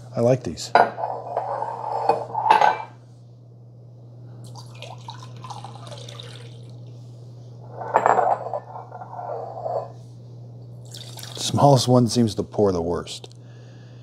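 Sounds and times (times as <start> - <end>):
water pouring into glass cup: 4.5 - 6.9, 10.8 - 11.5.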